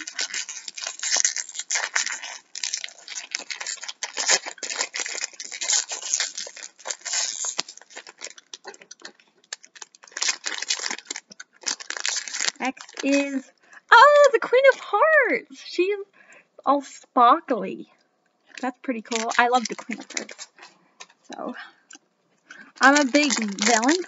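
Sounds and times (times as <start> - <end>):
plastic packaging tearing and crumpling: 0.0 - 14.8, 18.5 - 21.3, 22.5 - 24.0.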